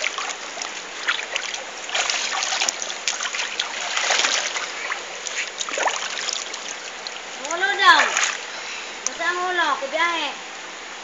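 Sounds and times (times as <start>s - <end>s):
child splashing in water: 0.0s - 8.4s
river water rushing over rocks: 0.0s - 8.5s.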